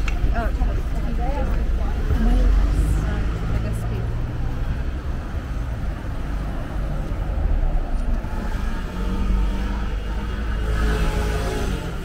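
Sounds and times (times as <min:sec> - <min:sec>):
low engine rumble of traffic: 0:00.0 - 0:12.0.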